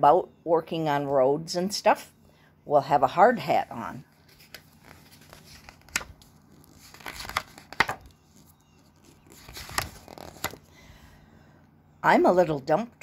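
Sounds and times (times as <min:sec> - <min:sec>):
book pages turning: 0:04.1 - 0:10.7.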